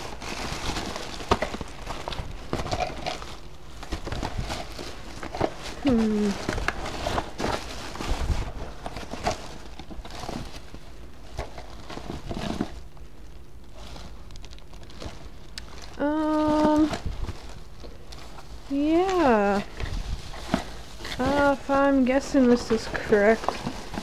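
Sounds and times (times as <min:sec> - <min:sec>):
plastic bags and paper rustling: 0:00.0 - 0:24.0
steady hum: 0:00.0 - 0:24.0.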